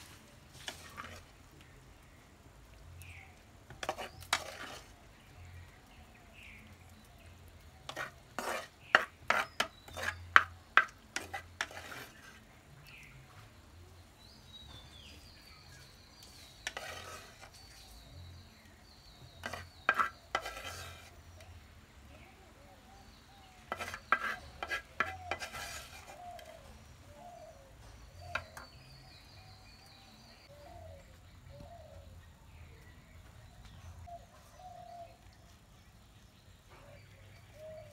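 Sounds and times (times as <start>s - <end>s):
spoon scraping clay pots: 0.0s - 1.7s, 3.0s - 5.5s, 6.3s - 13.4s, 14.5s - 21.6s, 23.2s - 30.5s
birds calling softly: 0.0s - 37.9s.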